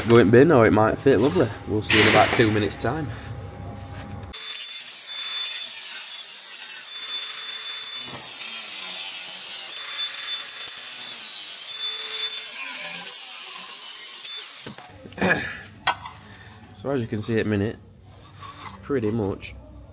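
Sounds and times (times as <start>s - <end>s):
angle grinder cutting metal pipe: 4.3s - 14.9s.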